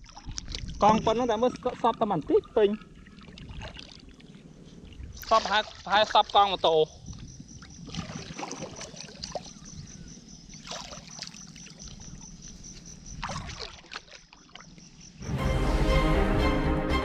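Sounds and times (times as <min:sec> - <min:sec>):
water sloshing and splashing: 0:00.0 - 0:15.2.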